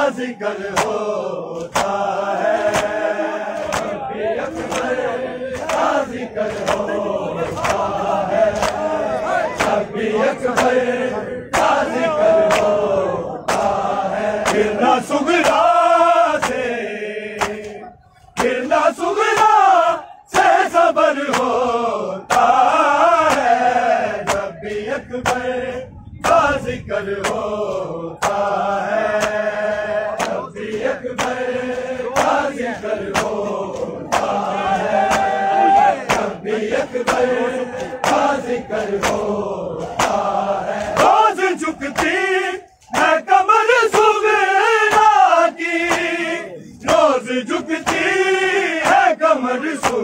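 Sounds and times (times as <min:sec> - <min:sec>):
men chanting in unison: 0:00.0 - 0:50.0
hands slapping bare chests: 0:00.7 - 0:04.0, 0:04.6 - 0:05.0, 0:05.6 - 0:06.9, 0:07.6 - 0:09.0, 0:11.5 - 0:12.8, 0:13.5 - 0:14.7, 0:15.4 - 0:15.7, 0:16.4 - 0:16.7, 0:17.4 - 0:17.8, 0:19.3 - 0:19.7, 0:21.2 - 0:21.6, 0:22.3 - 0:24.5, 0:27.2 - 0:29.5, 0:30.2 - 0:32.5, 0:33.1 - 0:35.4, 0:36.0 - 0:41.3, 0:41.9 - 0:42.2, 0:44.9 - 0:45.2, 0:45.8 - 0:46.1, 0:47.8 - 0:48.2, 0:48.8 - 0:50.0.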